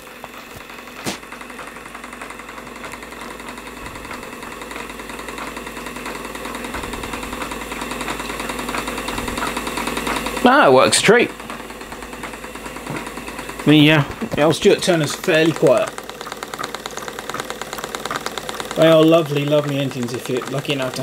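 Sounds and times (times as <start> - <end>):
model steam engine running fast: 0.0 - 21.0
sharp click: 0.6 - 1.7.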